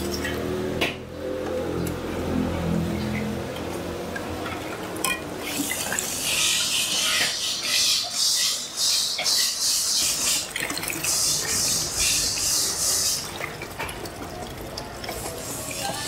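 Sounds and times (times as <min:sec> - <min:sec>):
wet sloshing pours: 0:02.2 - 0:07.2, 0:09.9 - 0:16.0.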